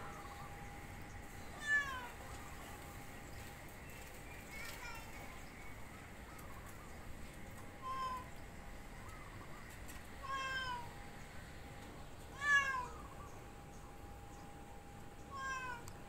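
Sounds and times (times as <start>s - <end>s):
cat meowing: 1.6s - 2.2s, 10.2s - 10.9s, 12.4s - 13.0s, 15.3s - 15.9s.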